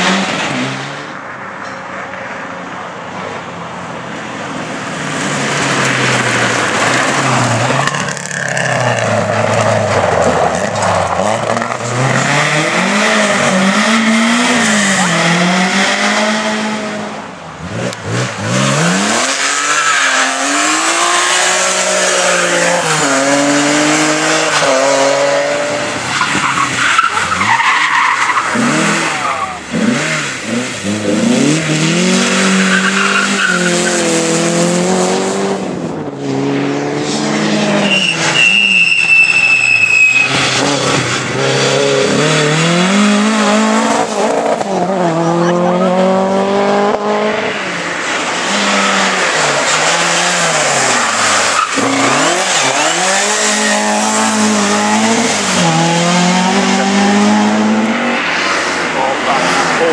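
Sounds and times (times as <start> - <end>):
rally car engines revving: 0.0 - 1.7, 2.6 - 59.9
high steady squeal: 37.8 - 40.4.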